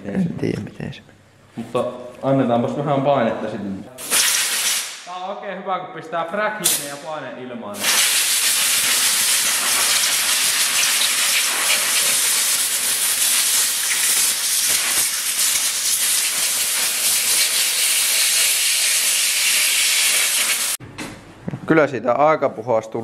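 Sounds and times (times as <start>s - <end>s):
air blow gun hissing: 4.0s - 5.1s, 7.8s - 20.8s.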